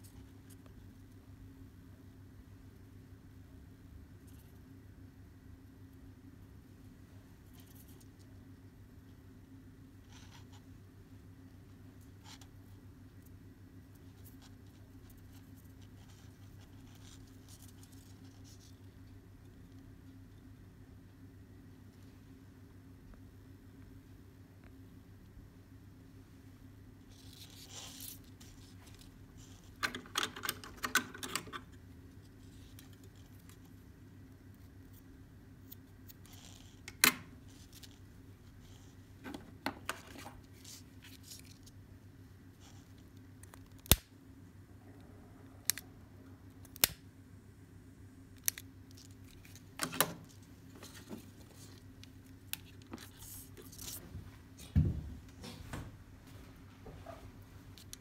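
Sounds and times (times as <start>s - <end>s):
faint steady hum: 0.0s - 58.0s
cord rustling and scraping: 7.4s - 8.5s, 11.6s - 19.8s, 27.0s - 33.8s, 34.5s - 41.8s, 42.4s - 43.8s, 48.4s - 54.7s.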